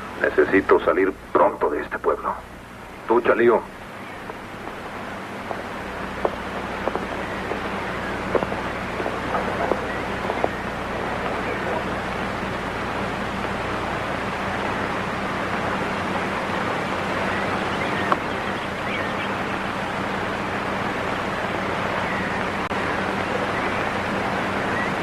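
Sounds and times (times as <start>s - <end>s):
film soundtrack hiss and hum: 0.0s - 25.0s.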